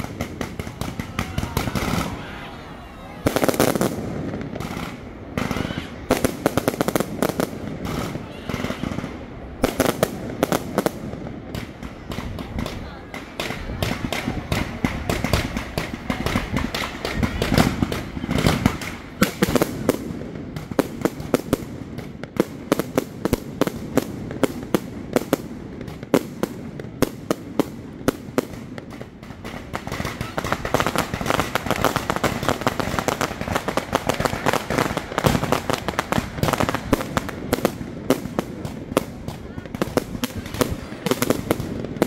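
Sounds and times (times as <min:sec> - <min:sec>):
fireworks bangs and crackling: 0:00.0 - 0:42.0.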